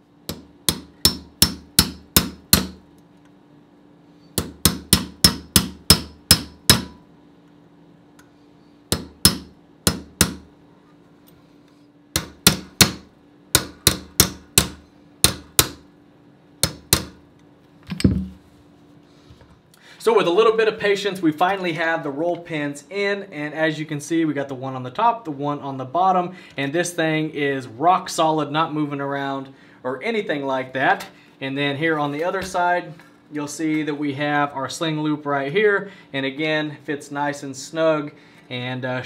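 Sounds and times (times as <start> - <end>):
hammer striking metal punch: 0.3 - 2.8, 4.4 - 7.1, 8.9 - 10.5, 12.1 - 15.8, 16.6 - 17.2.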